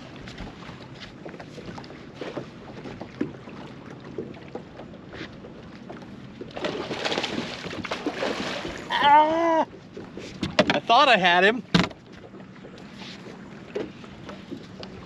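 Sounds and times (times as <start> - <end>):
water and wind around boat: 0.0 - 15.0
man's wavering exclamation: 8.9 - 9.7.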